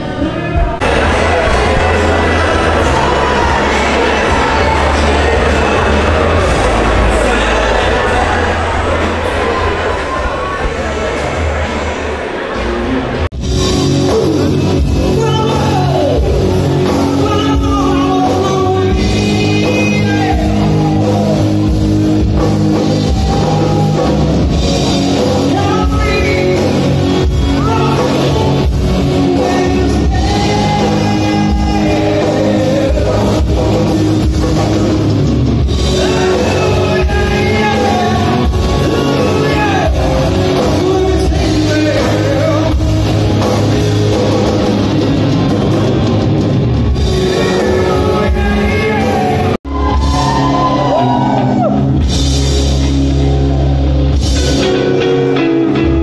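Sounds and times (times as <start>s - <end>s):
bass guitar: 0.0s - 56.0s
drum kit: 0.0s - 56.0s
electric guitar: 12.4s - 56.0s
person singing: 13.9s - 44.8s, 46.9s - 52.0s.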